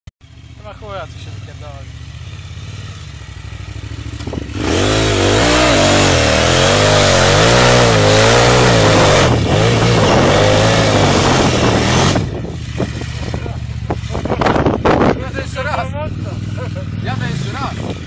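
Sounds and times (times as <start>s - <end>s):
motorcycle engine revving hard: 0.2s - 18.0s.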